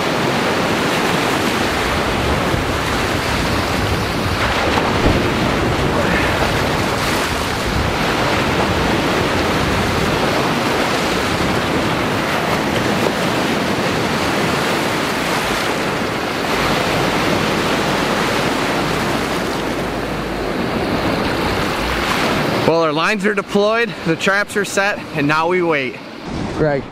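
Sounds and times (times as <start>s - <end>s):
waves washing on pebble shore: 0.0s - 19.5s
wind buffeting microphone: 0.0s - 22.7s, 26.0s - 26.9s.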